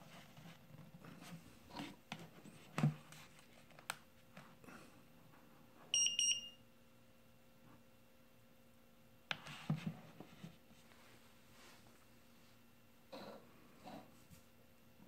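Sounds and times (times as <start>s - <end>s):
high beeps: 6.0s - 6.6s.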